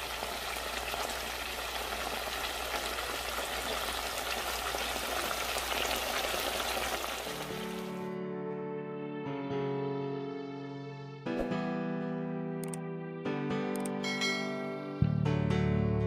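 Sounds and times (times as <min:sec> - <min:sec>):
food sizzling in oil: 0:00.0 - 0:07.9.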